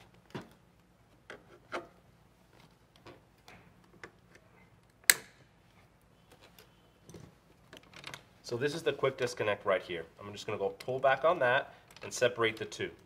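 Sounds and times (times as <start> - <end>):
sharp loud click: 5.1 - 5.4.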